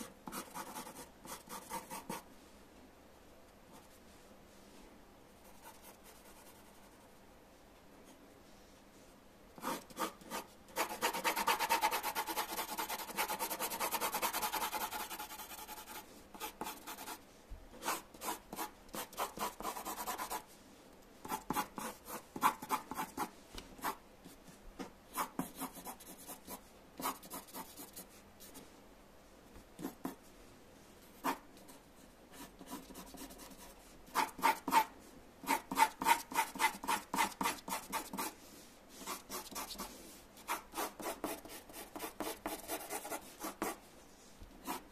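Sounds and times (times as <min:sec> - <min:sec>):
pencil scratching on paper: 0:00.0 - 0:02.2, 0:05.4 - 0:07.0, 0:09.6 - 0:17.2, 0:17.8 - 0:20.5, 0:21.3 - 0:24.0, 0:25.1 - 0:28.1, 0:32.3 - 0:38.4, 0:39.0 - 0:39.9, 0:40.5 - 0:43.8, 0:44.6 - 0:44.9.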